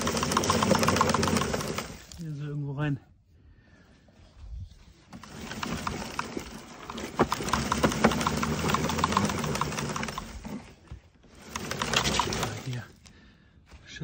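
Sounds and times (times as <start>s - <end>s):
leaf collector brush clattering: 0.0s - 2.4s, 5.2s - 10.7s, 11.3s - 12.9s.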